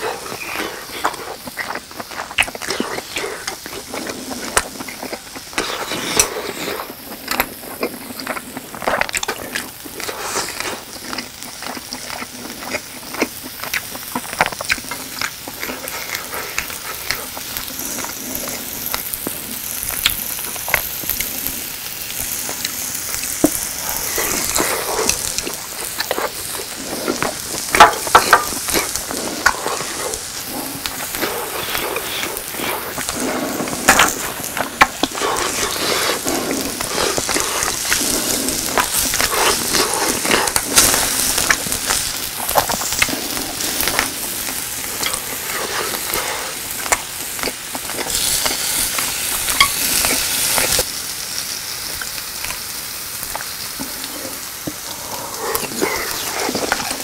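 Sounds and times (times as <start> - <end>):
chewing: 0.0 - 50.9, 51.8 - 57.0
cheese sizzling on a grill: 0.0 - 57.0.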